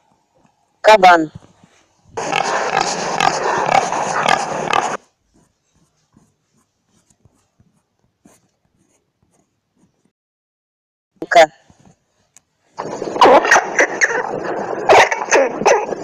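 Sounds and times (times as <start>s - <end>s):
wild boar calling: 2.2s - 5.0s.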